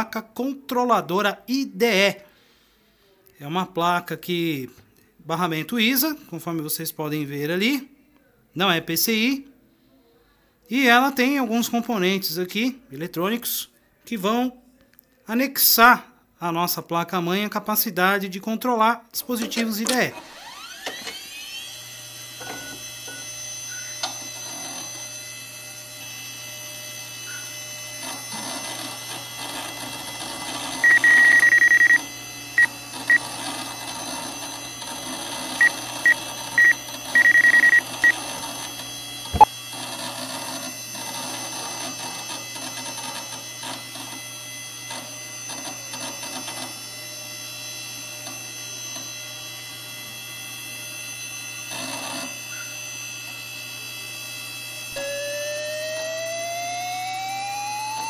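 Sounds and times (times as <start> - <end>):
high computer speaker beeps: 30.8 - 32.0, 36.6 - 38.2.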